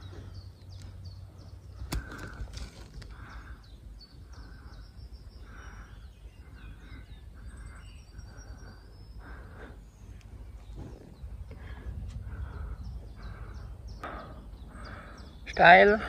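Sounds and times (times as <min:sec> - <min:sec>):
small birds chirping: 0:00.0 - 0:16.0
low microphone rumble: 0:10.3 - 0:15.3.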